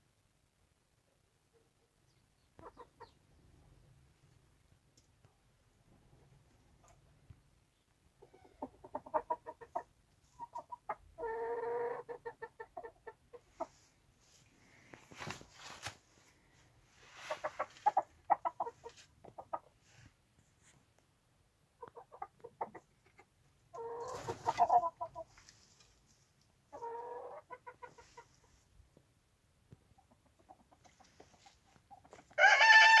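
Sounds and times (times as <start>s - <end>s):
chickens clucking: 2.5s - 3.4s, 8.1s - 13.9s, 17.1s - 19.8s, 21.7s - 28.7s, 29.8s - 32.4s.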